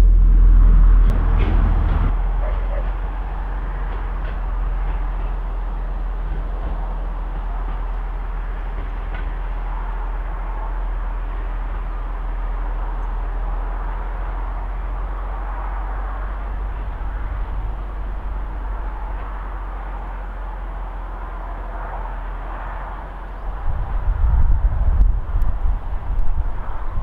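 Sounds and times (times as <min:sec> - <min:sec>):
railcar running along the line: 0:00.0 - 0:27.0
wind rumbling on microphone: 0:00.0 - 0:27.0.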